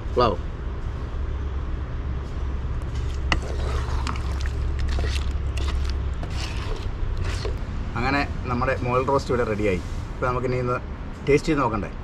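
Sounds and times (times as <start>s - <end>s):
steady low rumble: 0.0s - 12.0s
wooden spatula scraping metal pot: 3.0s - 7.6s.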